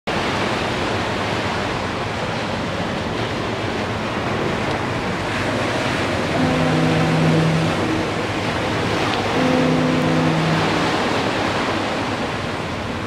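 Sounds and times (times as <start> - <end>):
ocean surf breaking on beach: 0.1 - 13.0
foghorn low note: 6.2 - 12.3.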